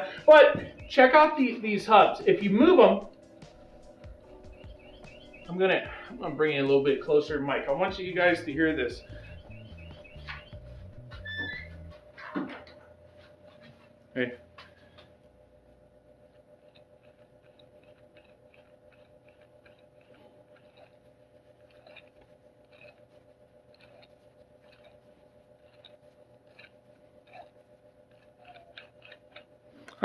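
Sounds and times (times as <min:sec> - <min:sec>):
wheel bearing rough clicking: 0:15.8 - 0:30.0.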